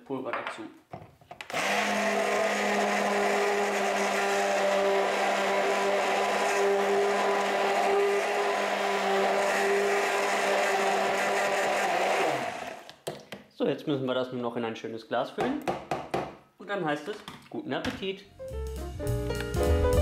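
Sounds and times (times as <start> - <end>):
stick blender running: 1.5 - 12.9.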